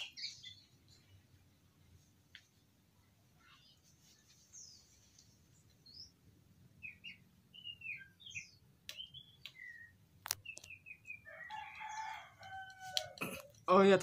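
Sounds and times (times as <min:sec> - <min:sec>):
small birds chirping: 0:00.0 - 0:13.8.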